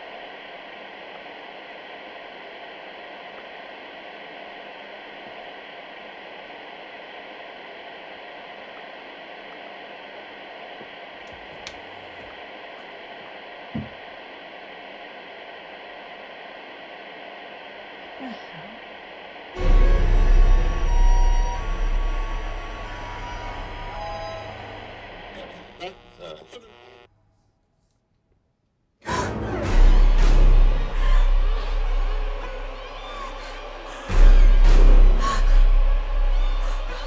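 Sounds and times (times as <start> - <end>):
white noise machine hissing: 0.0 - 27.1.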